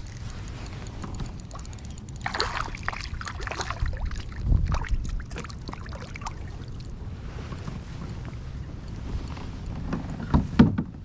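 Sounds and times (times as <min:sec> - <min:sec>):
fishing reel ticking: 0:00.0 - 0:04.4
water splashing at kayak side: 0:00.1 - 0:08.4.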